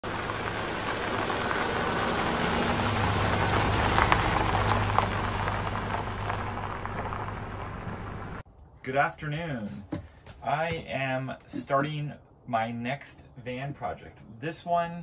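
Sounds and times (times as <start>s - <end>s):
rain-like hiss: 0.0s - 8.4s.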